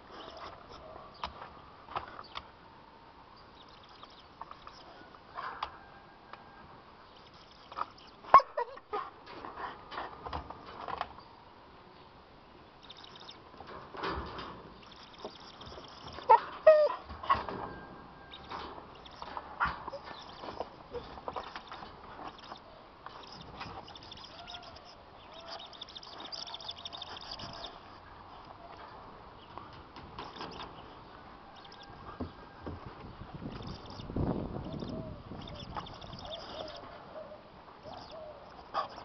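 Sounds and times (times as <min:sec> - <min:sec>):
dog whining and yipping: 0:15.7 - 0:18.5, 0:19.2 - 0:21.3, 0:34.9 - 0:39.0.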